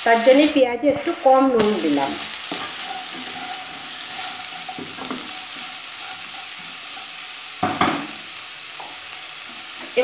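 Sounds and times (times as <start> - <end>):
onions sizzling in oil: 0.0 - 10.0
wooden spatula scraping pan: 2.4 - 7.2.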